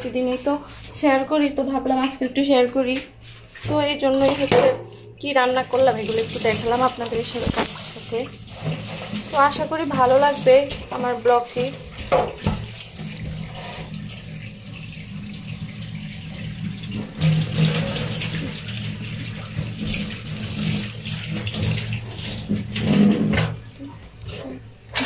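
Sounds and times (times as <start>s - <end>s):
tap water splashing into sink: 3.6s - 5.0s, 5.7s - 24.2s.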